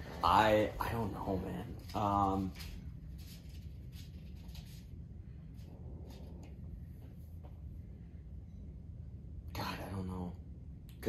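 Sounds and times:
faint soft rustles: 0.0 - 8.0
low steady hum: 0.0 - 11.0.

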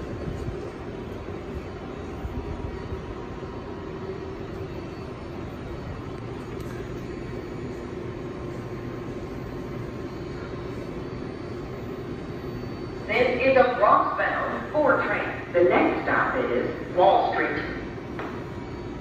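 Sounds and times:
faint steady hums: 0.0 - 19.0
subway car interior drone: 0.0 - 19.0.

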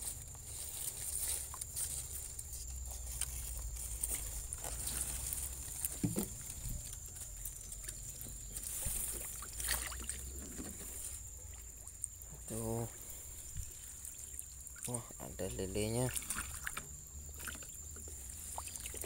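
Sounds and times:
water sloshing and swirling: 0.0 - 19.0
light knocks: 6.0 - 6.4.

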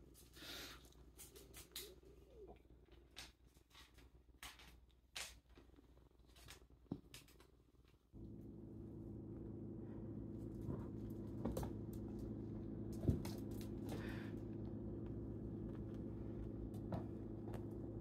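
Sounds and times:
steady low hum: 8.0 - 18.0.

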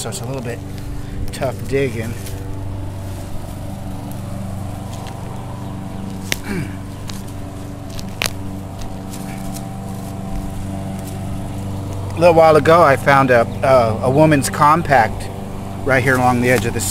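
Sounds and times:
hand tool digging in soil: 0.0 - 12.2, 15.9 - 16.9
low mechanical hum: 0.0 - 16.9.

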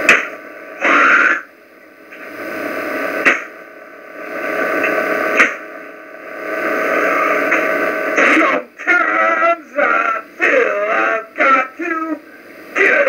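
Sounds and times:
loud static and hum: 0.0 - 13.0
burst of noise: 2.3 - 8.6.

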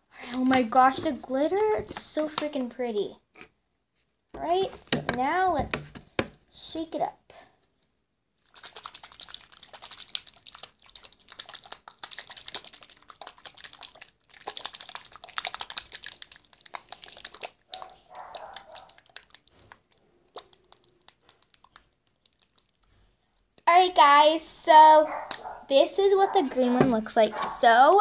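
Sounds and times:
container shaken rattling and sloshing: 8.4 - 22.8.

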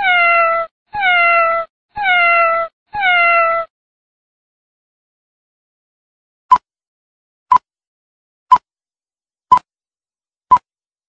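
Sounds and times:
cat meowing: 0.0 - 3.7.

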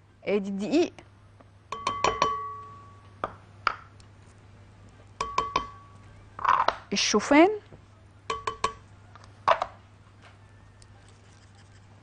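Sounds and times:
glass bowl clinking and ringing: 1.7 - 3.1, 5.2 - 6.0, 8.3 - 8.8.

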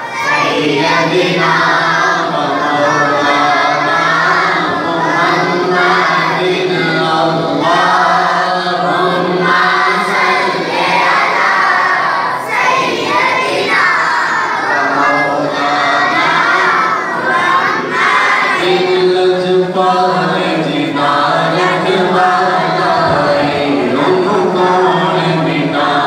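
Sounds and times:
person singing unaccompanied: 0.2 - 11.8, 14.6 - 26.0.

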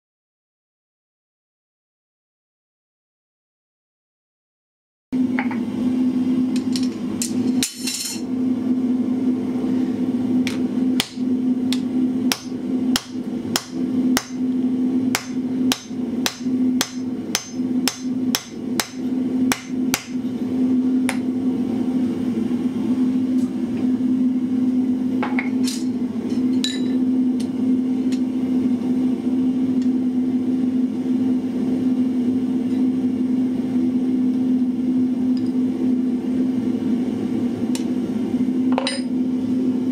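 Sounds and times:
hammer striking punch on anvil: 10.5 - 14.4, 15.1 - 20.2.

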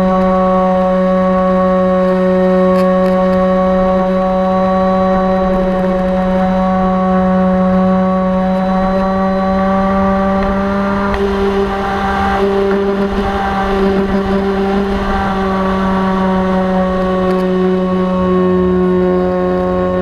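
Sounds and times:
electric motor and propeller drone: 0.0 - 20.0
wind rumble on microphone: 0.0 - 20.0.

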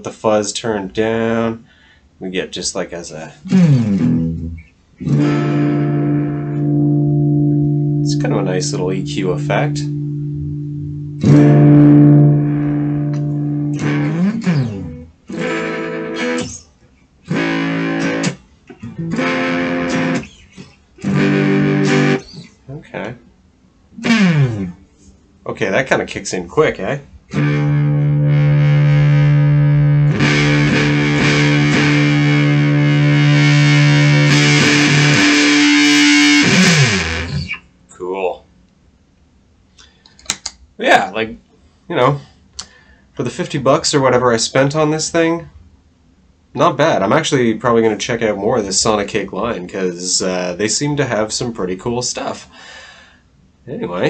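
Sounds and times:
fuzz electric guitar chords: 3.4 - 16.6, 17.2 - 22.5, 24.0 - 24.9, 27.3 - 37.6.

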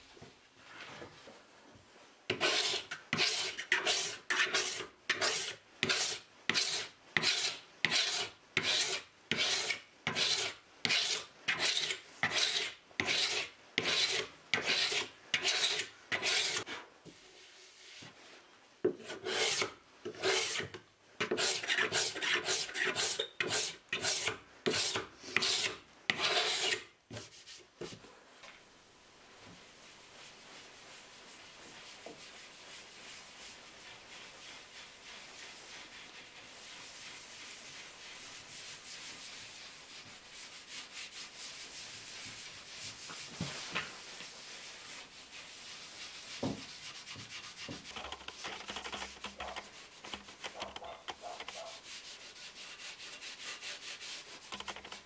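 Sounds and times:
tool rasping across wood board: 2.3 - 16.7, 19.0 - 26.8, 46.4 - 55.0.

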